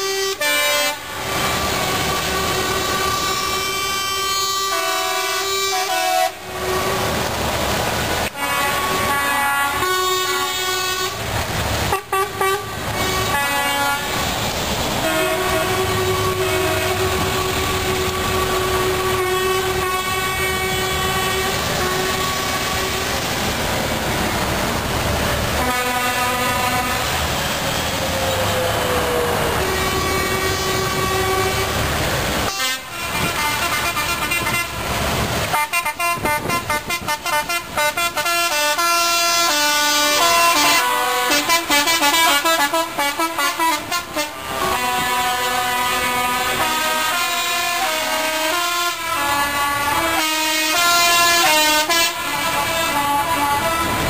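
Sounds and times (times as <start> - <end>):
lorry horns blasting: 0.0 - 7.3, 8.2 - 23.3, 25.6 - 54.0
diesel engines rumbling: 0.0 - 54.0.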